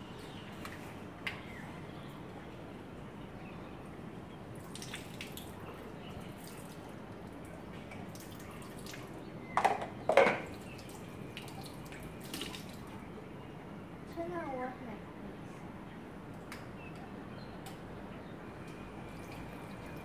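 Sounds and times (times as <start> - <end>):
tap water running into basin: 19.2 - 20.0.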